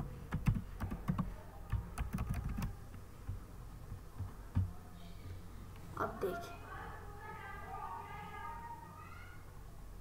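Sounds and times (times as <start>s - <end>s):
keyboard typing: 0.0s - 4.7s.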